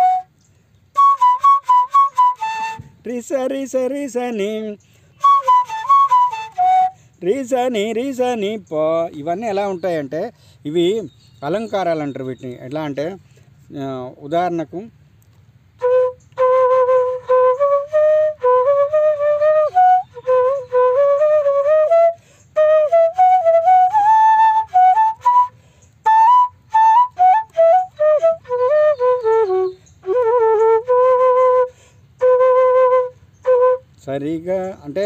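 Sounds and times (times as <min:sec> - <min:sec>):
bamboo flute playing: 0:00.0 - 0:12.8, 0:15.7 - 0:35.0.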